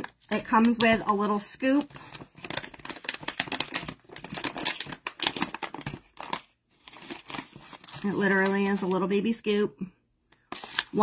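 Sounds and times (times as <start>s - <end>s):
paper pouch crinkling: 1.6s - 8.9s, 10.5s - 11.0s.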